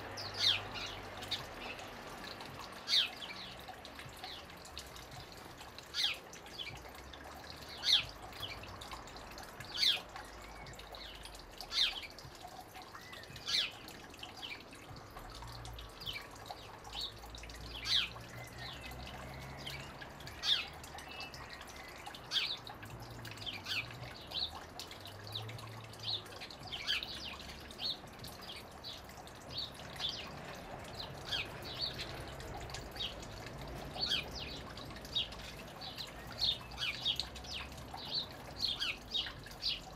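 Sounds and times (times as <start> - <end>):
sparrows chirping: 0.0 - 39.9
water trickling into pool: 0.0 - 39.9.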